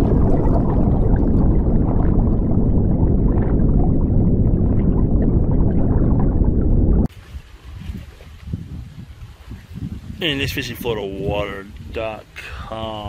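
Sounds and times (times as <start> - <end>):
underwater bubbles rushing: 0.0 - 10.2.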